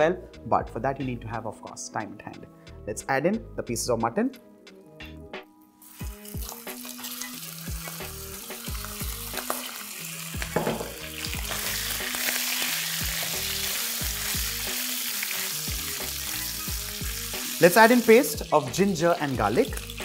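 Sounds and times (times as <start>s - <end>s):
meat sizzling in a wok: 5.8s - 20.0s
sharp knock: 10.6s - 11.0s.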